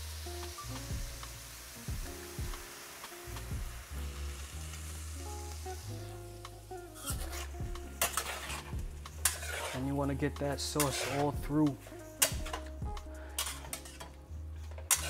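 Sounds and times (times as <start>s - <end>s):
sauce sizzling in a wok: 0.0s - 15.0s
metal spatula scraping a wok: 7.0s - 15.0s.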